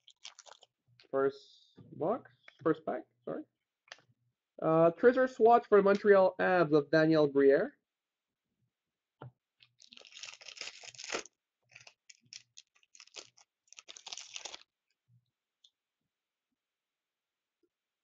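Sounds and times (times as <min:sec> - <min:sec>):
wrapper torn and crinkled: 0:00.0 - 0:00.7, 0:09.6 - 0:14.8.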